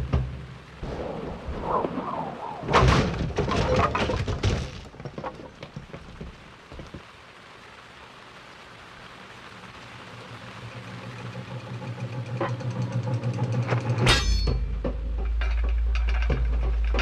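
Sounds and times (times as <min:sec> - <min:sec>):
faint steady hiss: 0:00.0 - 0:12.4
loud crash of breaking: 0:02.7 - 0:05.5, 0:14.0 - 0:17.0
scattered knocks: 0:02.7 - 0:07.0.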